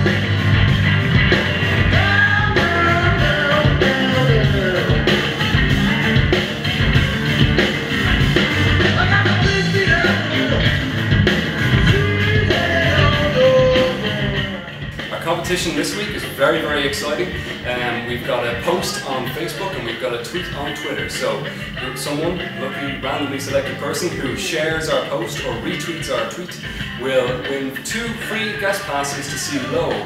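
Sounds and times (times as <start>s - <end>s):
blues-rock band playing: 0.0s - 30.0s
man singing: 1.8s - 5.4s, 8.7s - 10.8s, 11.7s - 30.0s.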